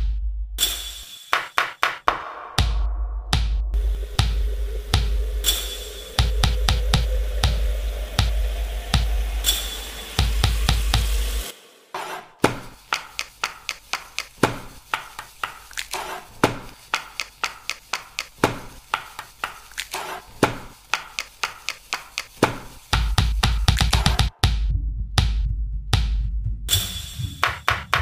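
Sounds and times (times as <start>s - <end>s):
background music with a beat: 0.0s - 28.0s
hands slapping raw chicken: 12.5s - 24.2s.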